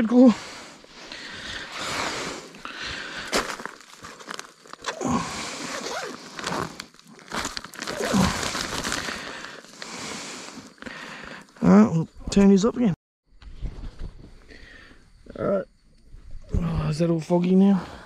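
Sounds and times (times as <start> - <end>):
cooler bag rustling in dry leaves: 1.4 - 10.7.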